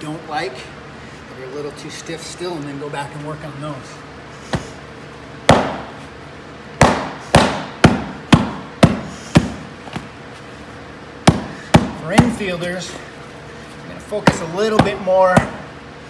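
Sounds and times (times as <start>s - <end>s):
mallet thudding on leather glove: 5.5s - 6.0s, 6.8s - 10.1s, 11.2s - 12.4s, 14.2s - 15.7s.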